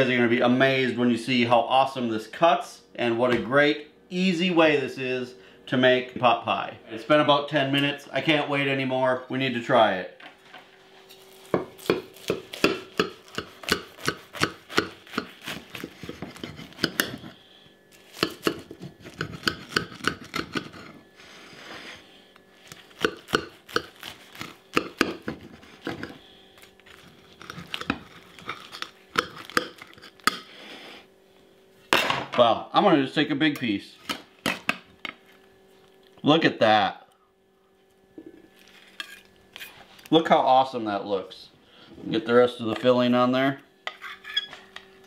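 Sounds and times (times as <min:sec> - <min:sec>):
knife sawing through crisp crust: 0:11.1 - 0:17.4, 0:18.0 - 0:22.0, 0:22.6 - 0:26.1.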